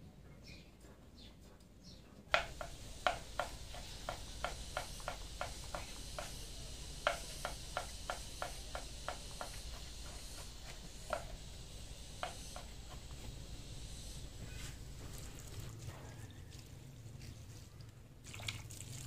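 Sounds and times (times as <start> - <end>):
knife chopping on wooden board: 2.3 - 13.4
faint bird chirps: 14.0 - 14.8.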